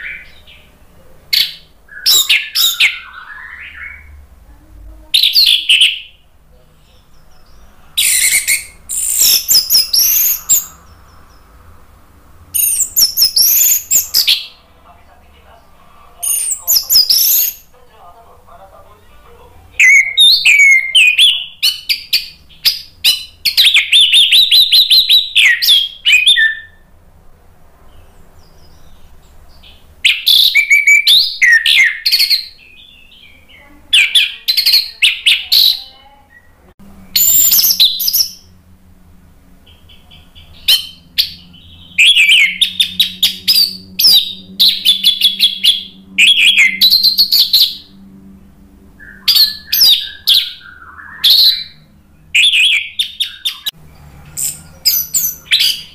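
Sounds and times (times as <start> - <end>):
thrush singing whistled phrases: 1.4 - 4.3, 7.5 - 11.8, 12.5 - 14.6, 16.2 - 17.7, 19.8 - 26.9, 30.0 - 38.5, 39.8 - 47.9, 49.0 - 53.8, 54.4 - 55.9.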